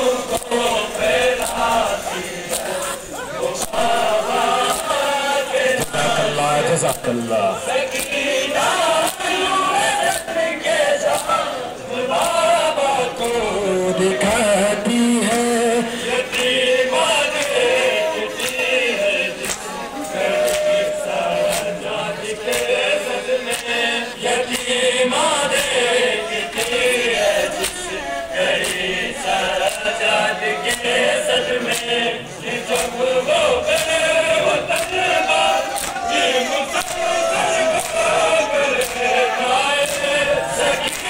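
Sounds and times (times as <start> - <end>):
men chanting a lament: 0.0 - 41.0
hands slapping chests: 1.4 - 5.1, 5.8 - 7.2, 10.0 - 10.4, 11.1 - 11.4, 12.1 - 12.4, 18.4 - 18.7, 19.4 - 20.8, 21.4 - 21.8, 22.5 - 22.8, 23.4 - 23.8, 26.5 - 27.9, 28.5 - 29.0, 29.6 - 30.0, 31.6 - 32.0, 32.7 - 33.0, 33.7 - 34.1, 34.7 - 36.0, 36.8 - 39.2, 39.8 - 41.0.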